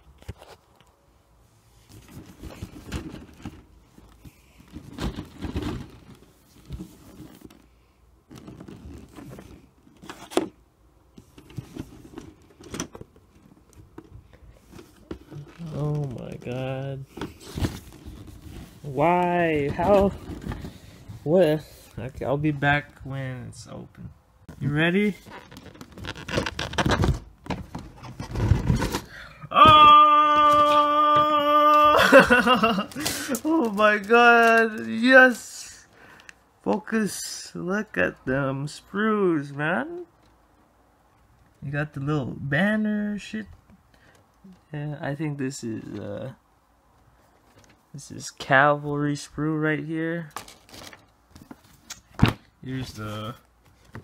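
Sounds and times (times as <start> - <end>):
cardboard rustling and scraping: 1.8 - 23.0, 24.5 - 29.1, 50.4 - 54.0.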